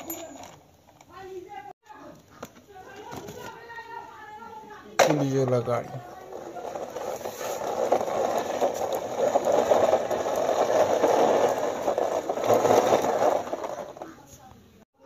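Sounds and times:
toy car wheels rattling on floor: 0.0 - 1.3, 5.0 - 14.6.

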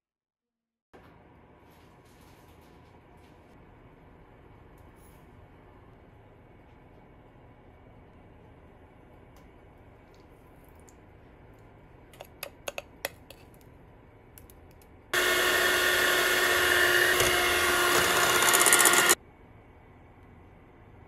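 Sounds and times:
electric hand mixer whisking: 15.2 - 19.2.

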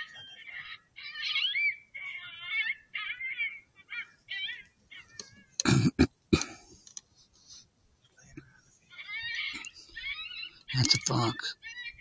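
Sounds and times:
electronic animal distress cries: 0.0 - 5.7, 8.9 - 12.0.

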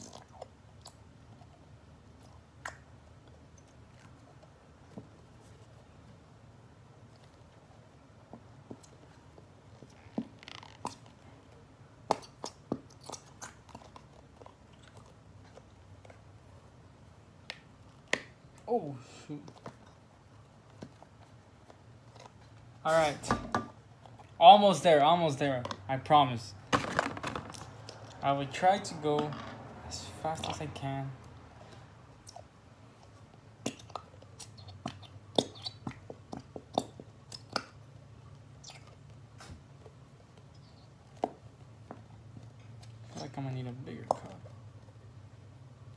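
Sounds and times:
glue bottle popping and squeaking: 8.2 - 16.3, 32.2 - 44.6.

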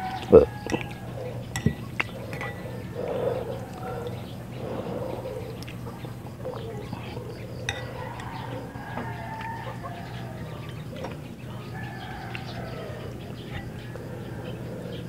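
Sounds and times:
spoon clinking against glass bowl: 0.1 - 3.0, 7.6 - 9.3.

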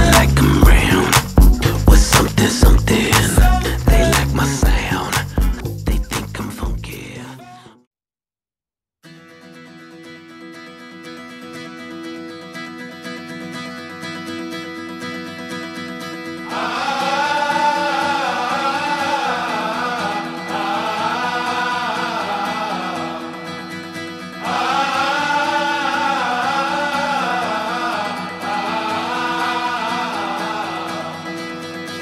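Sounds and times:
voices singing together: 0.0 - 6.6, 16.4 - 23.8, 24.4 - 32.0.

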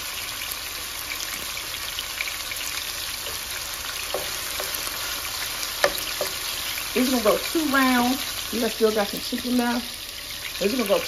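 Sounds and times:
chicken sizzling in oil: 0.0 - 11.0
wooden spoon knocking pan: 3.2 - 6.6.

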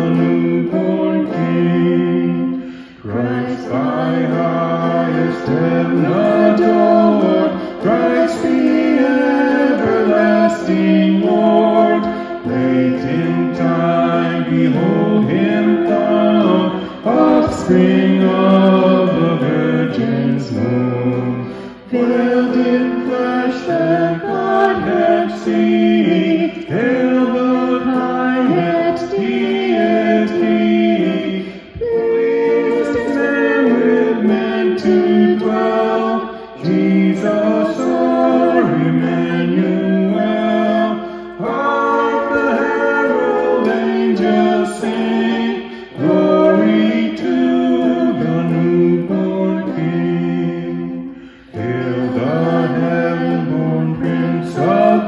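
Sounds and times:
electric guitar accompaniment: 0.0 - 55.0
man and woman singing a hymn: 0.0 - 55.0.

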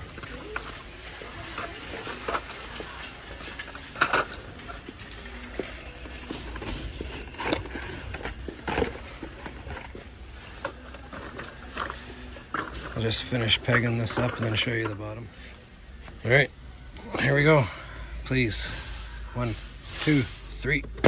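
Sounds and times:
plastic packs clicking and rustling: 0.0 - 15.2
low steady hum: 0.0 - 21.0.

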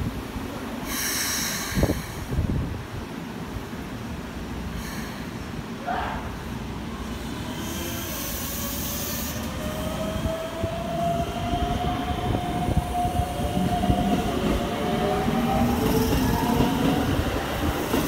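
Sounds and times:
train wheels rumbling on rails: 7.0 - 18.0.

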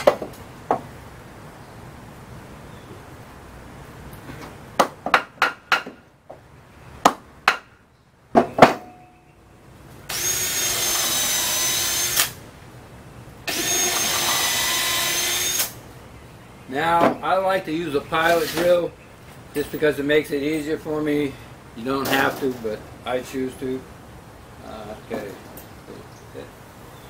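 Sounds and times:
power drill boring into wood: 10.1 - 12.4, 13.5 - 15.8.

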